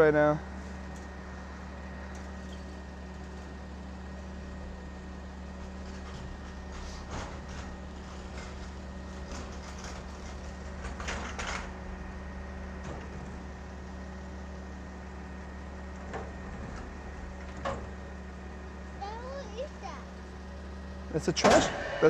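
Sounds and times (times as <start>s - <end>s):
garbage truck engine idling: 0.0s - 22.0s
dumpster clanking and rattling: 5.5s - 14.1s, 15.9s - 18.1s, 21.3s - 22.0s.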